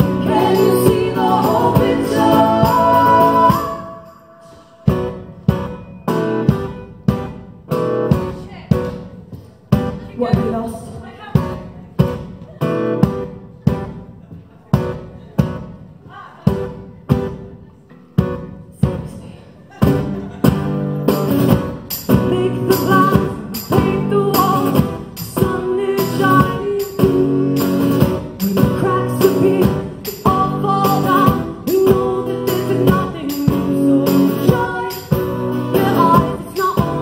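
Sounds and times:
person singing: 0:00.0 - 0:05.3, 0:22.1 - 0:37.0
acoustic guitars strumming: 0:00.0 - 0:10.6, 0:11.4 - 0:37.0.

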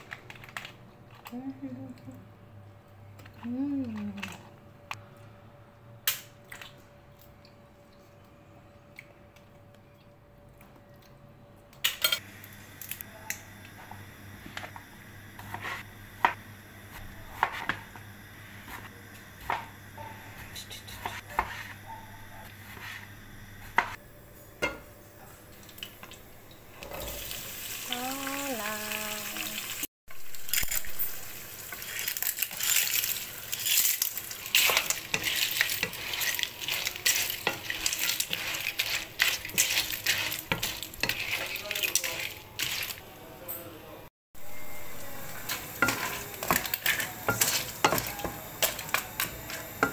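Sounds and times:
food sizzling in a hot pan: 0:26.9 - 0:43.0, 0:44.4 - 0:49.9.

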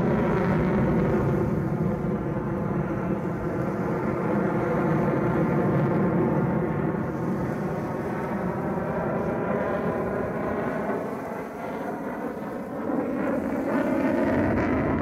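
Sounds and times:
distant jet engine rumble: 0:00.0 - 0:15.0.

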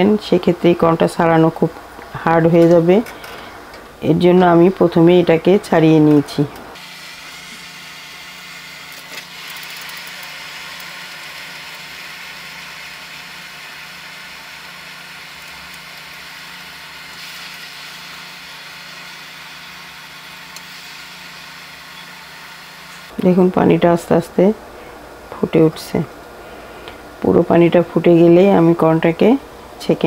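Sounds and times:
water boiling and bubbling: 0:09.6 - 0:22.9.

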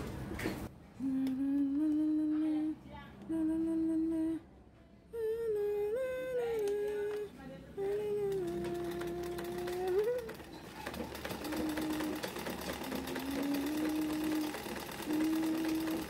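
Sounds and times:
person humming: 0:01.0 - 0:04.4, 0:05.1 - 0:10.5, 0:11.2 - 0:16.0.

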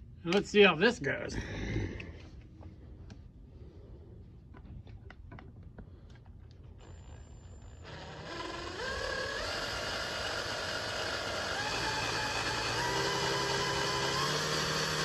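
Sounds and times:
power drill whining: 0:06.6 - 0:15.0.

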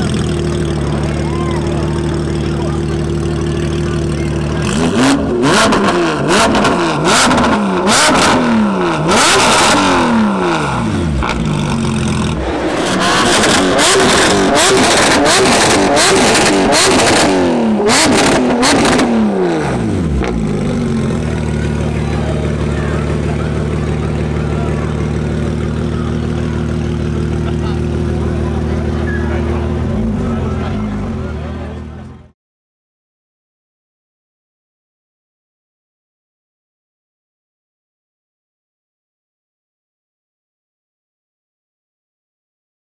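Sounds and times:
car engine revving: 0:00.0 - 0:32.2
exhaust cracks: 0:02.0 - 0:31.2.

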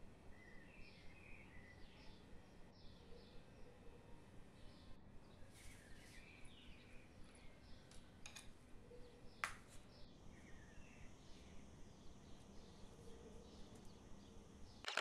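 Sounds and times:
small birds chirping: 0:00.3 - 0:14.9
low steady hiss: 0:03.4 - 0:14.8.

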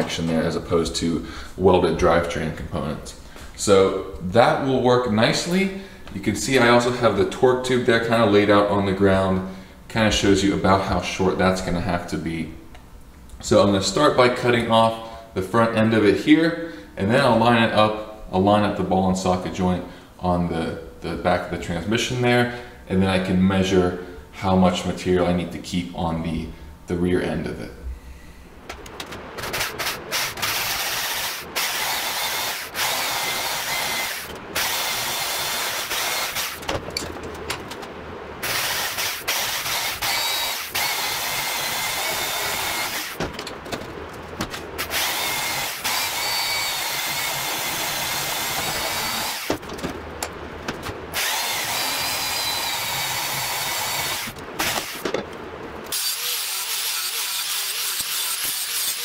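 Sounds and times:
angle grinder cutting steel: 0:29.8 - 0:36.6, 0:38.4 - 0:43.2, 0:44.8 - 0:49.5, 0:51.2 - 0:55.0, 0:55.9 - 0:59.0.

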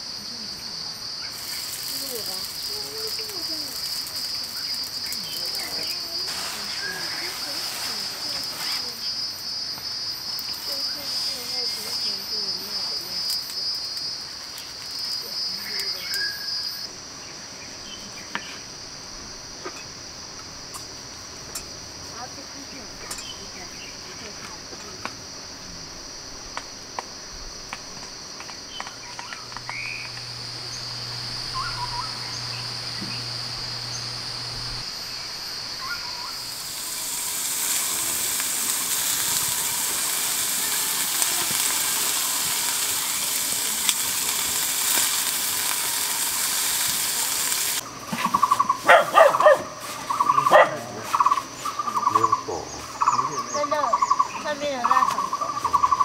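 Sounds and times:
faint chirps: 0:00.0 - 0:18.8, 0:28.5 - 0:49.4, 0:50.0 - 0:56.0
insects droning: 0:00.0 - 0:56.0
loud steady hiss: 0:00.0 - 0:56.0
dog barking: 0:48.8 - 0:49.8, 0:50.4 - 0:51.0.

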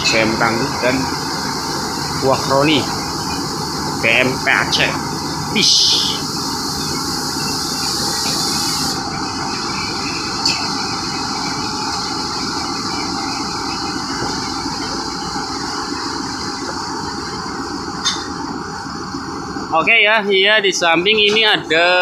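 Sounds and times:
high hiss: 0:00.0 - 0:09.1
machinery rumbling: 0:00.0 - 0:22.0.

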